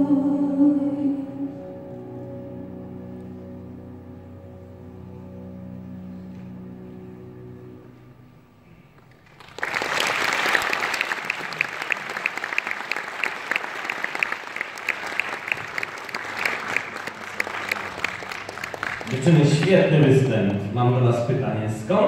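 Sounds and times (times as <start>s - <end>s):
backing music: 0.0s - 9.1s, 16.2s - 22.0s
audience applause: 9.0s - 21.0s.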